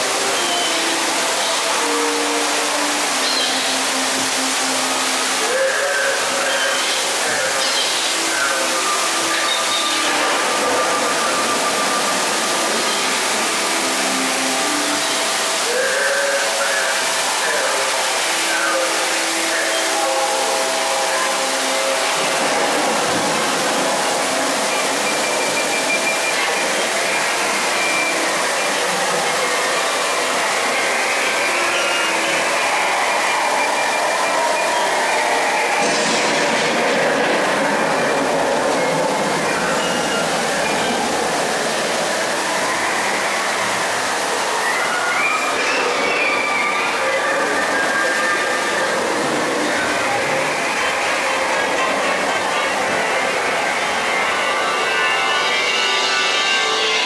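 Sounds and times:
rushing water: 0:00.0 - 0:57.0.

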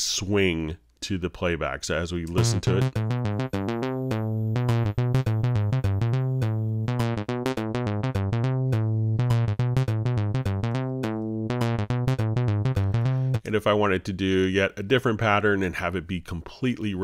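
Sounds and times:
steady low synth tone: 0:02.4 - 0:13.5
synthesizer lead short notes: 0:02.4 - 0:13.5.

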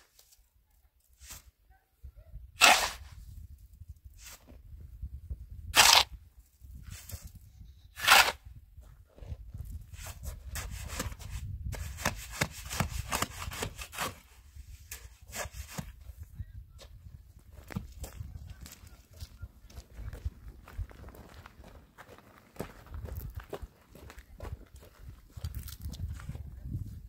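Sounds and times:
shovel scraping sand and soil: 0:01.1 - 0:01.6, 0:02.6 - 0:03.3, 0:04.2 - 0:04.6, 0:05.7 - 0:06.2, 0:06.8 - 0:08.5, 0:09.9 - 0:16.0.

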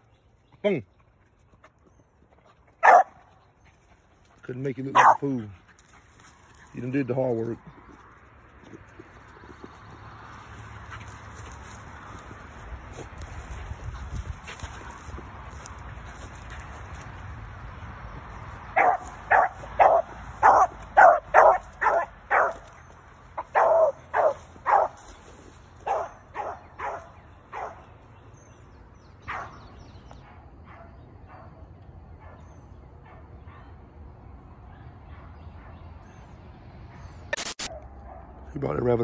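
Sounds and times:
dog baying and barking: 0:02.8 - 0:03.2, 0:05.0 - 0:05.3, 0:18.8 - 0:22.6, 0:23.4 - 0:25.0, 0:25.8 - 0:27.8.

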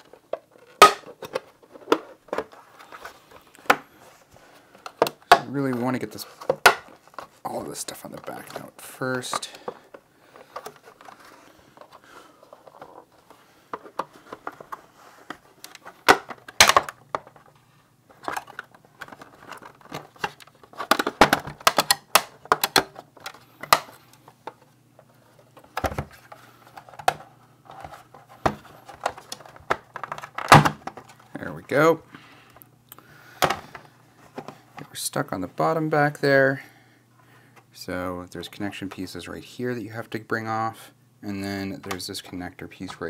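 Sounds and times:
plastic case clicking and cracking: 0:04.8 - 0:05.8, 0:09.2 - 0:17.6, 0:18.2 - 0:24.7, 0:25.5 - 0:31.3.

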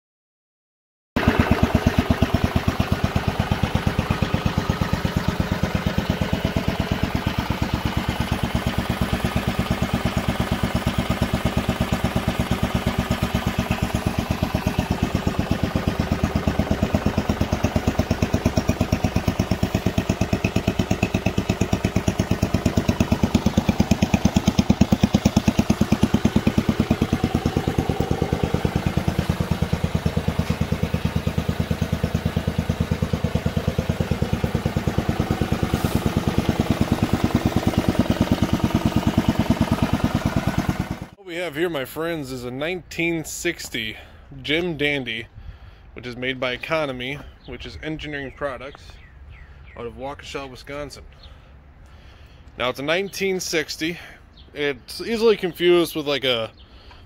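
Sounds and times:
small engine running: 0:01.2 - 0:41.2.

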